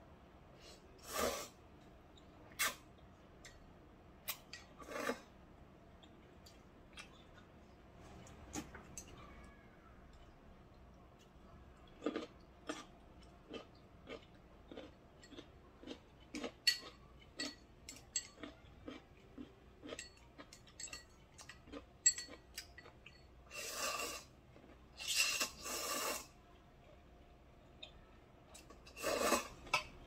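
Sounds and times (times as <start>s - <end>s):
noodle slurps: 25.0s - 26.3s, 28.9s - 29.6s.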